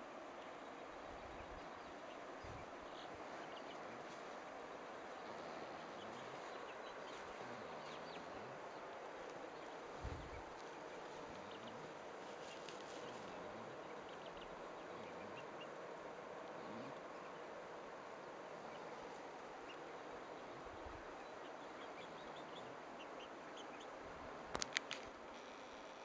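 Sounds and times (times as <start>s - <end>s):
outdoor background noise: 0.0s - 26.0s
chicks peeping: 1.2s - 15.8s
sharp clicks: 24.5s - 25.2s.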